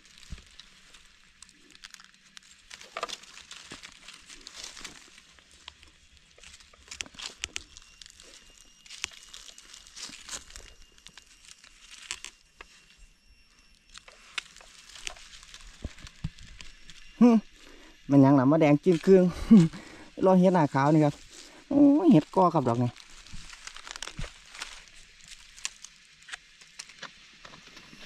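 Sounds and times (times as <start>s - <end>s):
dry leaves crackling and rustling: 0.0s - 28.0s.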